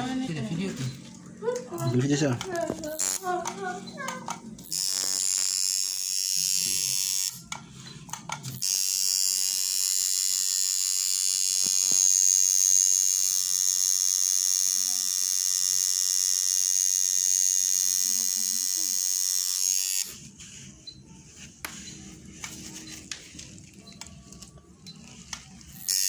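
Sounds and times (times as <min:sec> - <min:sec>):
tattoo machine buzzing: 0:01.8 - 0:07.6, 0:08.4 - 0:20.9, 0:24.8 - 0:26.0.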